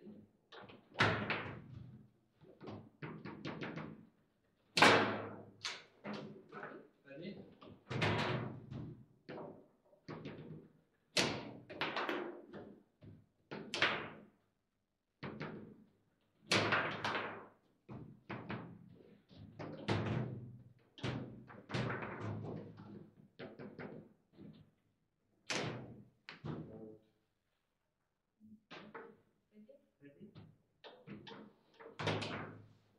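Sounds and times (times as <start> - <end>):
foosball knocks and clacks: 7.9 - 12.8, 16.5 - 18.8, 21.0 - 24.6, 30.4 - 32.6.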